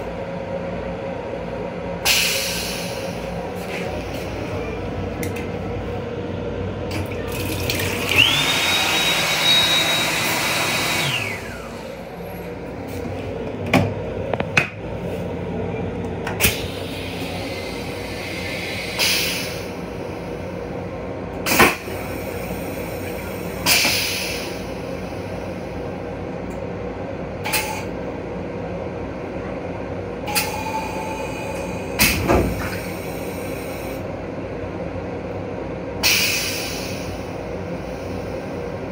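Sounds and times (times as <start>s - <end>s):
train hum: 0.0s - 38.9s
water spurts: 6.9s - 8.6s
hand dryer whining: 6.9s - 11.9s
toilet flushing: 6.9s - 12.1s.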